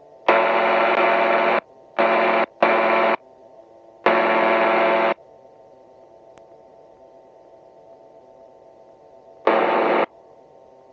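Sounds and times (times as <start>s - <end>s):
faint engine hum: 0.0s - 10.9s.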